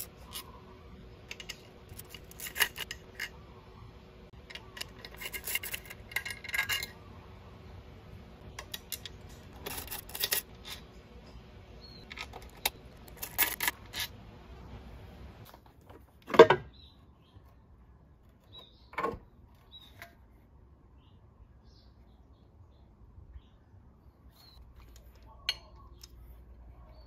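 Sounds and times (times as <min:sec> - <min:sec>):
metal clinks of bolts and ratchet: 0:04.4 - 0:07.0.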